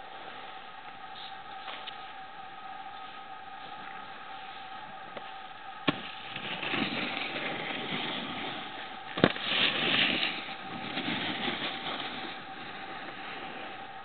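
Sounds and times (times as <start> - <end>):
faint steady whine: 0.0 - 14.0
snowboard scraping over snow: 5.8 - 14.0.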